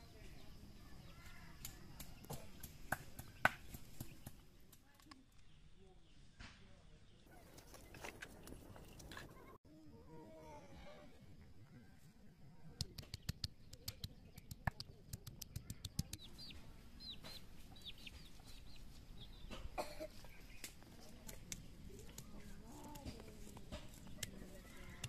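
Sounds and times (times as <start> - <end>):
bird chirps: 13.1 - 20.8.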